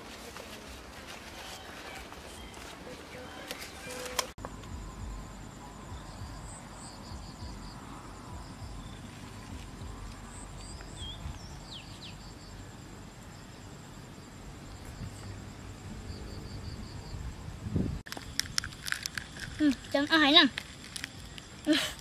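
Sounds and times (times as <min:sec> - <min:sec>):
cricket chirps: 0:00.5 - 0:22.0
insects trilling: 0:01.4 - 0:22.0
low outdoor rumble: 0:04.1 - 0:18.0.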